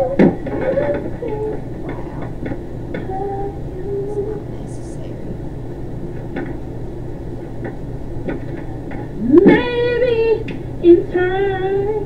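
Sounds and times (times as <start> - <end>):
faint singing through speakers: 0.0 - 5.5, 9.0 - 12.0
low hum: 0.0 - 12.0.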